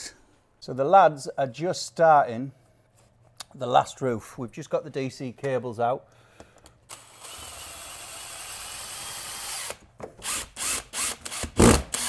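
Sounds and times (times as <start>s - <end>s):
cordless drill driving fixings: 6.9s - 12.0s.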